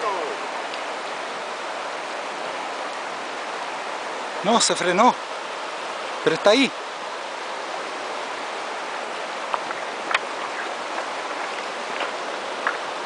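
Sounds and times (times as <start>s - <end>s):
river water rushing over stones: 0.0s - 13.0s
faint clicks: 0.6s - 0.9s.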